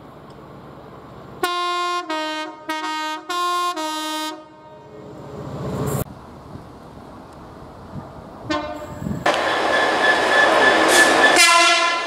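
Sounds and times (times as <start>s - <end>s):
approaching train rumble: 0.0s - 12.0s
train two-tone horn blasts: 1.4s - 4.9s, 8.5s - 12.0s.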